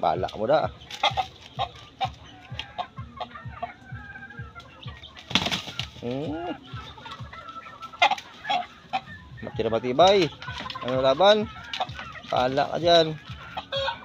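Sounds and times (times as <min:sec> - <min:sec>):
wing flapping: 0:00.0 - 0:02.9, 0:05.2 - 0:09.1, 0:09.9 - 0:14.0
roosters fighting: 0:00.0 - 0:14.0.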